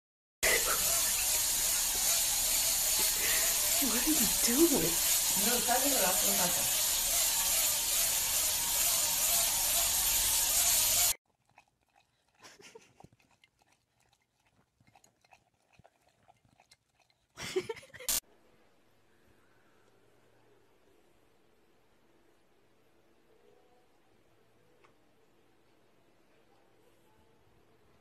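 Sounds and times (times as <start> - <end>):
loud steady hiss: 0.4 - 11.2
dog licking a glass: 11.4 - 17.4.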